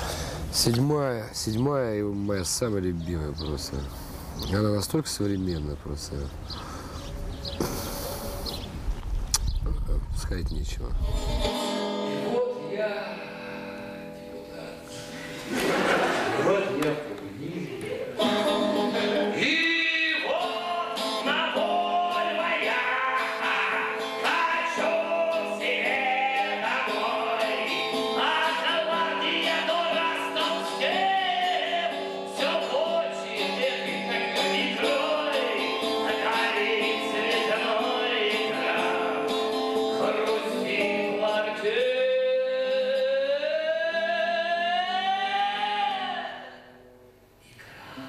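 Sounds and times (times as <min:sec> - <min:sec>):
man singing: 0:10.9 - 0:14.0, 0:17.8 - 0:46.7
strummed guitar: 0:11.0 - 0:16.6, 0:18.2 - 0:47.0.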